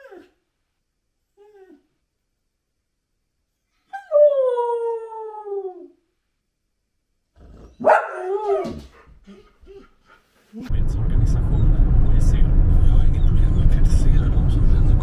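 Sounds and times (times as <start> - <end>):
dog howling: 7.4 - 8.9.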